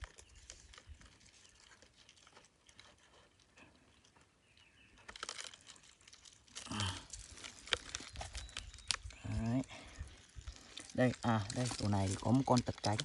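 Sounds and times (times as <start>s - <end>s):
stick rustling and scraping: 10.2s - 13.0s.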